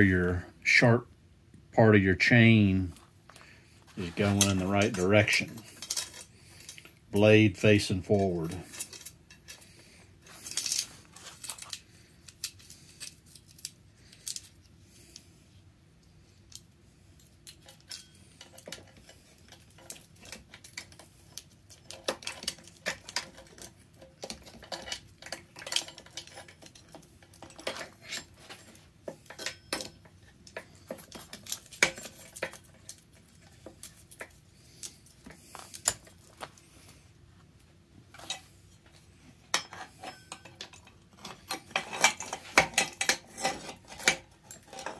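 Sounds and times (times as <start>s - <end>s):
saw chain clinking and rattling: 17.5s - 36.4s, 39.6s - 44.9s.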